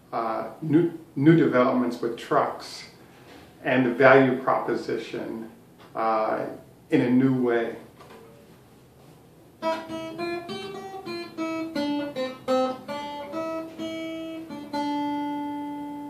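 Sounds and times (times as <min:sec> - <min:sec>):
acoustic guitar plucked melody: 0:09.6 - 0:16.0.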